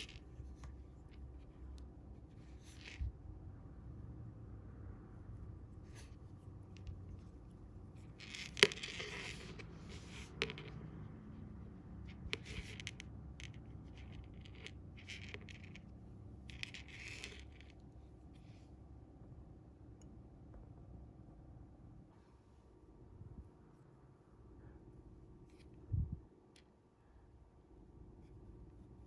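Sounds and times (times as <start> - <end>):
fishing line rubbing and scraping: 0.0 - 3.2, 5.4 - 11.1, 12.0 - 18.8.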